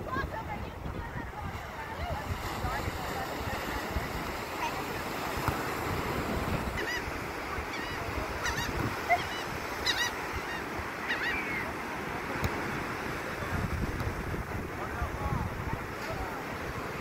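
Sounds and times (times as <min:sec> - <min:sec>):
surf rushing: 0:00.0 - 0:17.0
wind: 0:00.0 - 0:17.0
gulls crying: 0:04.4 - 0:13.5.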